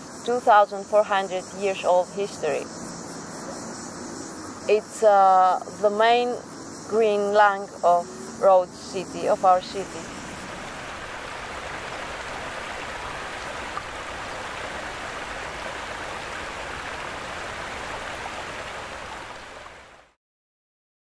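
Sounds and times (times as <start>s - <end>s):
flowing water rushing: 7.5s - 20.2s.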